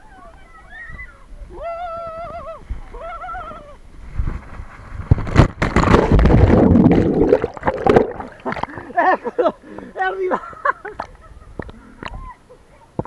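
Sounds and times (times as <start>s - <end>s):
water rushing and splashing: 5.6s - 9.0s.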